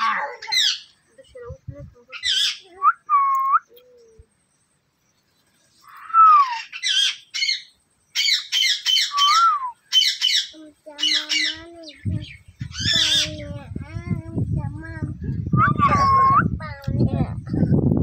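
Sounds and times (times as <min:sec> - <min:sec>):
parakeet squawking: 0:00.0 - 0:00.9, 0:02.1 - 0:02.6, 0:06.6 - 0:13.4.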